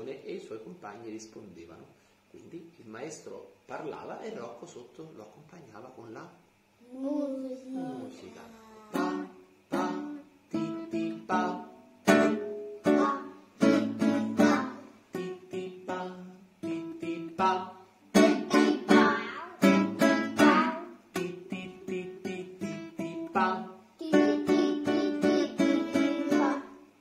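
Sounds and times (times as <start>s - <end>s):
acoustic guitar strumming: 8.8s - 27.0s.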